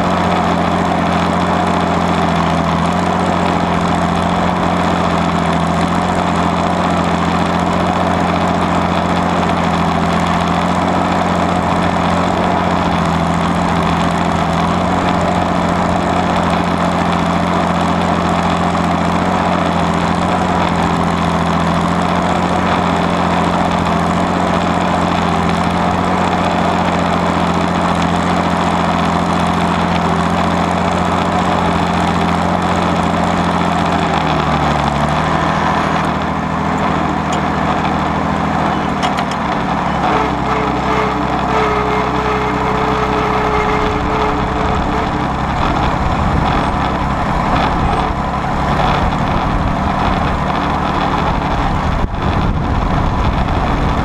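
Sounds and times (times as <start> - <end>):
tractor diesel engine under load: 0.0 - 54.0.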